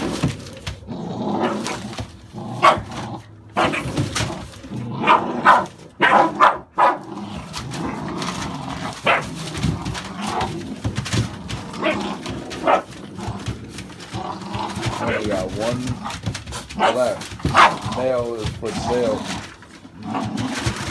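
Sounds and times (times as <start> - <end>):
puppies play growling: 0.0 - 20.9
puppies barking and yipping: 1.5 - 4.3, 5.0 - 7.1, 8.9 - 14.2, 14.8 - 20.9.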